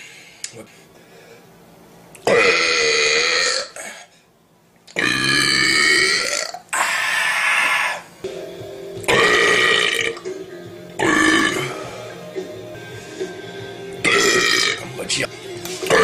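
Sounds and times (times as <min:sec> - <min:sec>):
man burping: 0:02.2 - 0:04.1, 0:05.0 - 0:07.7, 0:09.0 - 0:10.2, 0:11.0 - 0:12.0, 0:14.0 - 0:14.9.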